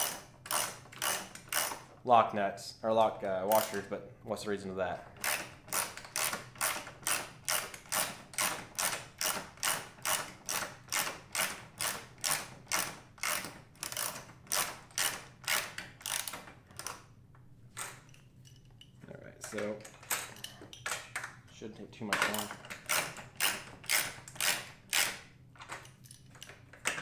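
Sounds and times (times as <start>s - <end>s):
socket ratchet clicking: 0.0s - 1.8s, 5.2s - 17.0s, 22.3s - 26.6s.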